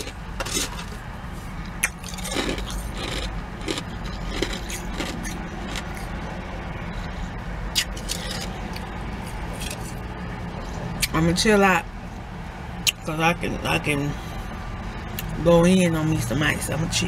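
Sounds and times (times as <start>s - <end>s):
low steady hum: 0.0s - 17.0s
ice cubes crunched between teeth: 1.8s - 6.1s.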